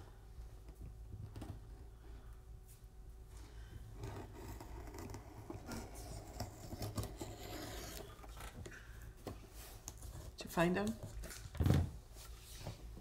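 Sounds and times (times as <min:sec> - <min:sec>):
scissors scraping cardboard: 0:04.0 - 0:08.6.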